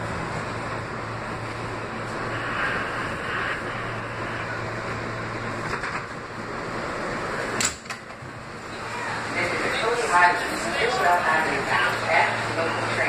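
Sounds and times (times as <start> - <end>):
subway train slowing to a stop: 0.0 - 13.0.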